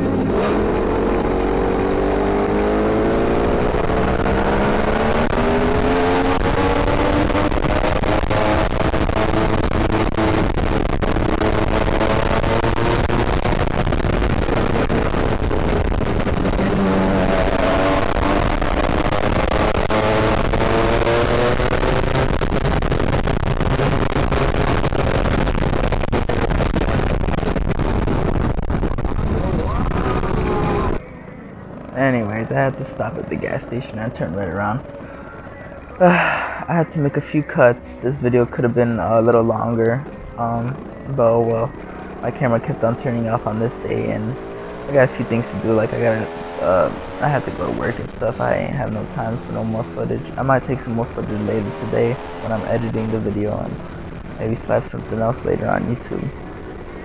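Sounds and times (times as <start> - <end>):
small gas engine revving: 0.0 - 24.8, 29.2 - 31.0, 39.1 - 57.0
wind and road noise: 0.0 - 57.0.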